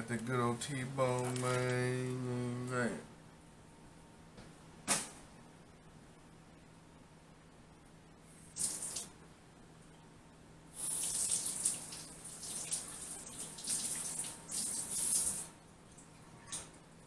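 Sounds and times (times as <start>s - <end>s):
tap water running and splashing: 11.0s - 15.4s.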